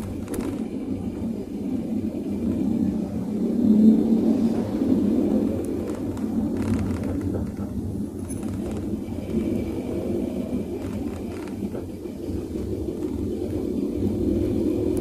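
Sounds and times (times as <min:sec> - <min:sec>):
car cabin rumble: 0:05.4 - 0:14.3
brake knocking: 0:05.7 - 0:09.6.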